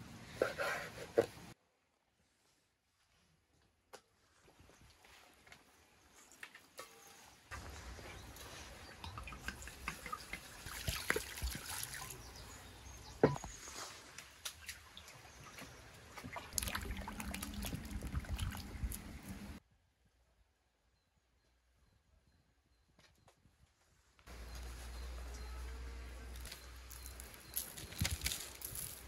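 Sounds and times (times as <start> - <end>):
water pouring into a bowl: 16.5 - 19.0.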